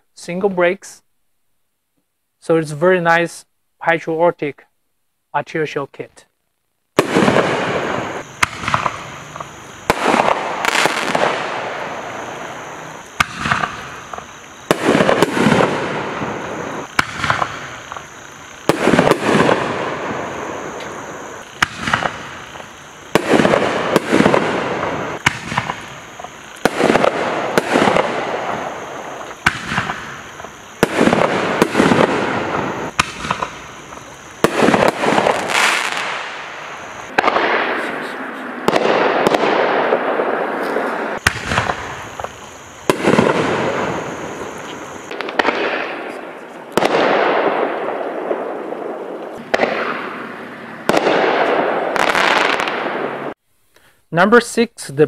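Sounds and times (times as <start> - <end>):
firework shells banging: 7.0 - 40.0, 40.6 - 46.2.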